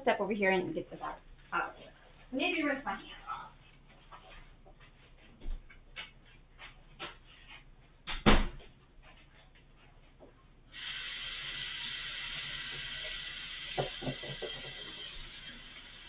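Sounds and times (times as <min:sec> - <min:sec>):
water running into sink: 0:10.8 - 0:16.0.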